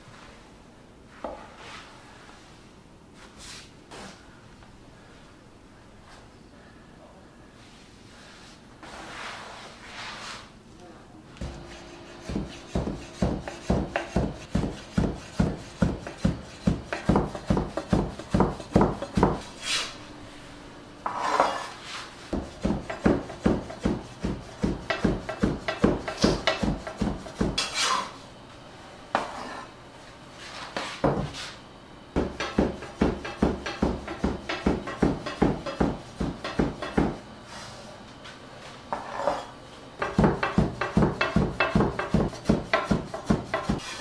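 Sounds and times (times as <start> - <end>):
knife chopping dough on wooden board: 11.4 - 19.5, 22.4 - 28.0, 32.2 - 37.2, 40.0 - 44.0.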